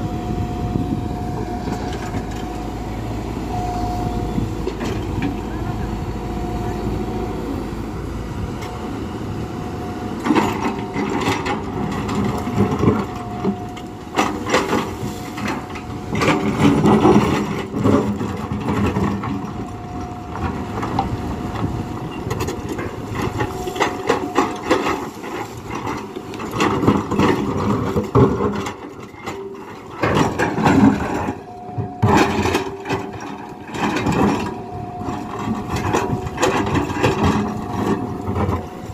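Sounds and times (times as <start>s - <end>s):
excavator engine humming: 0.0s - 38.9s
excavator bucket scraping rocky soil: 10.2s - 38.9s.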